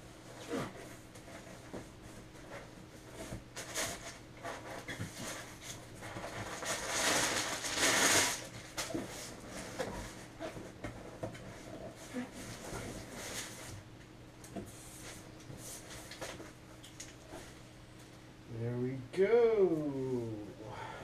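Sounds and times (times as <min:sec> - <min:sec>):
packing rustling: 0:03.6 - 0:10.6.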